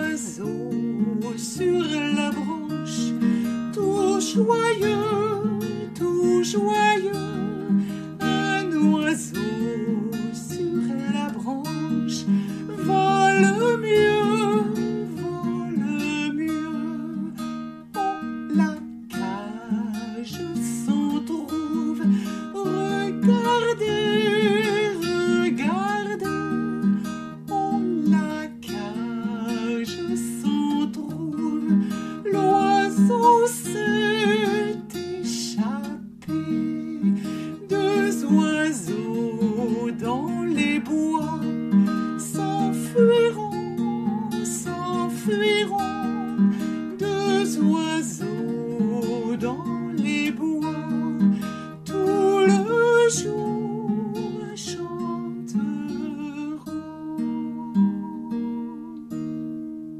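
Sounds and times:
strummed acoustic guitar: 0:00.0 - 0:59.9.

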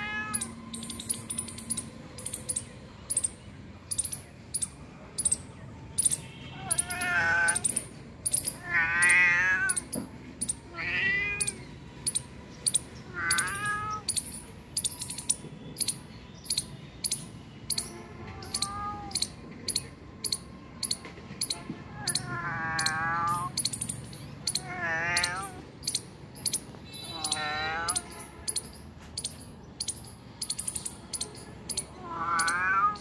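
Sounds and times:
cat meowing: 0:00.0 - 0:00.9, 0:06.5 - 0:11.7, 0:13.0 - 0:14.2, 0:18.2 - 0:19.4, 0:21.8 - 0:23.7, 0:24.4 - 0:28.2, 0:31.7 - 0:33.0
sharp high ticking: 0:12.0 - 0:17.9, 0:18.5 - 0:32.6.

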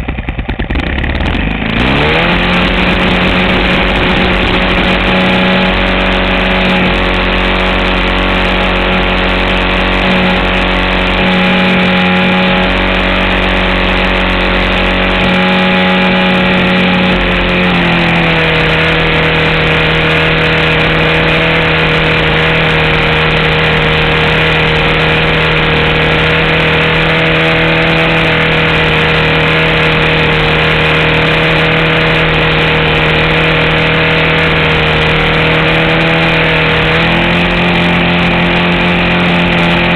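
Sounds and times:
model airplane engine running: 0:00.0 - 0:39.9
air rushing past: 0:01.7 - 0:30.1.

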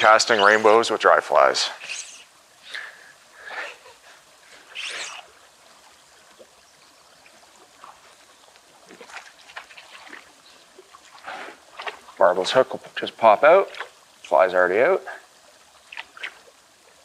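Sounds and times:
water trickling: 0:00.0 - 0:17.0
fish splashing in water: 0:08.8 - 0:12.2, 0:15.8 - 0:16.8.

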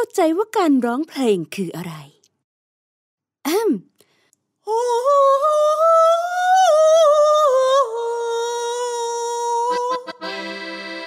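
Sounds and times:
high voice singing wordlessly: 0:04.6 - 0:10.6.

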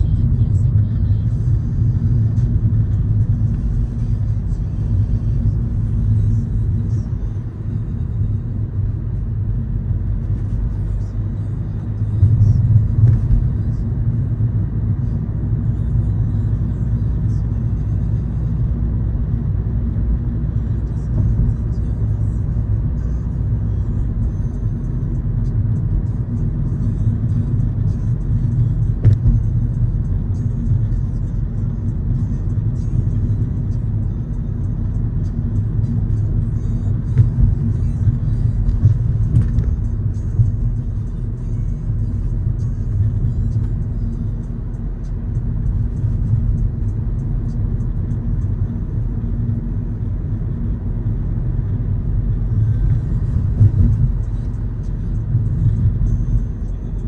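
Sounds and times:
car driving rumble: 0:00.0 - 0:57.0
music: 0:21.1 - 0:48.7.

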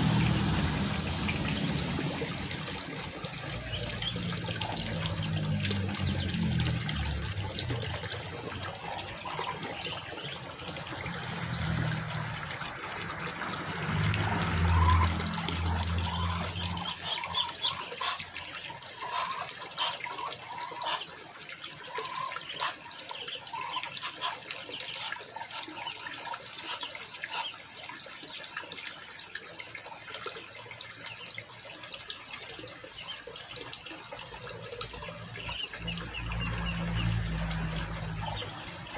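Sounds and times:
water trickling: 0:00.0 - 0:38.9.

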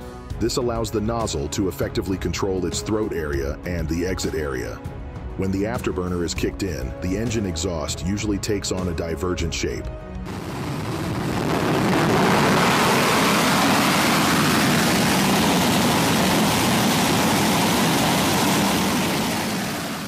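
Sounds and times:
jet engines running: 0:10.3 - 0:20.0.

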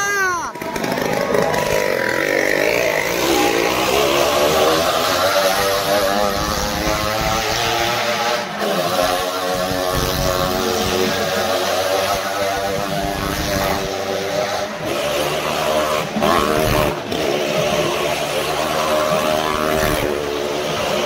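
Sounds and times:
motorcycle engine revving: 0:00.5 - 0:21.0.

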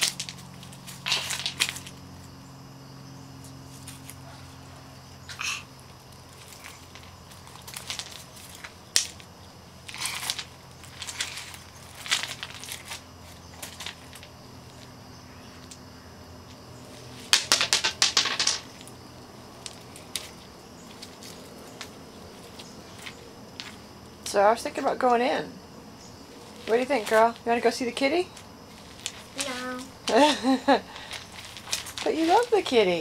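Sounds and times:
pebbles clattering and scraping: 0:00.0 - 0:02.0, 0:06.3 - 0:09.2, 0:09.8 - 0:14.8, 0:17.1 - 0:19.0, 0:31.0 - 0:32.5
stones knocking together: 0:17.3 - 0:18.8.

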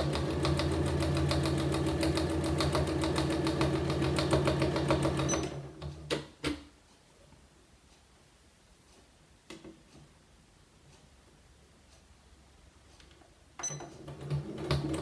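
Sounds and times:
sewing machine stitching: 0:00.0 - 0:06.3, 0:13.6 - 0:15.0.

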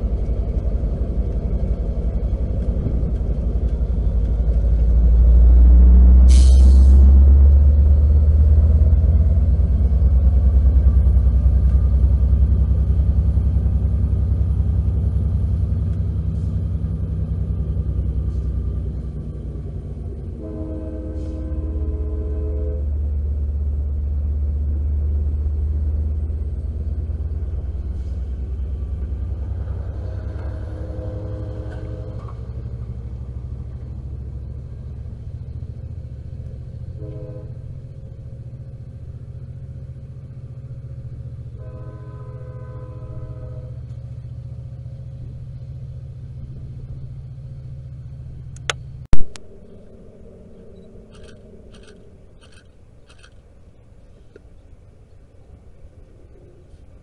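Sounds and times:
diesel locomotive rumbling: 0:00.0 - 0:57.0
train horn chord: 0:20.2 - 0:23.1, 0:29.9 - 0:32.7, 0:36.9 - 0:37.8, 0:41.6 - 0:43.9
short sharp click: 0:48.6 - 0:49.4.

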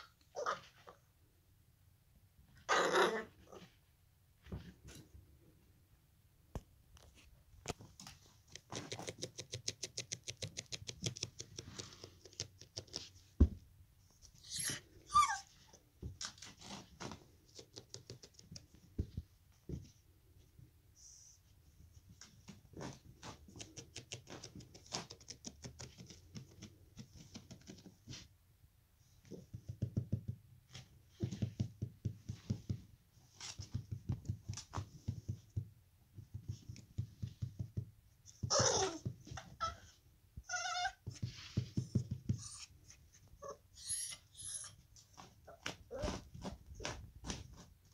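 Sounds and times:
puppy high-pitched cries: 0:00.0 - 0:00.9, 0:14.4 - 0:15.7, 0:38.4 - 0:41.0, 0:43.4 - 0:44.8
puppy scratching fabric mat: 0:45.0 - 0:47.9.

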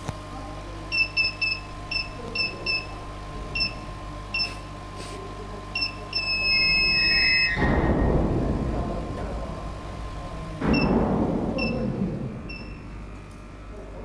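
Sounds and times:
electronic beeps: 0:05.8 - 0:07.6, 0:12.5 - 0:12.8
loud rushing machine noise: 0:06.8 - 0:13.2.

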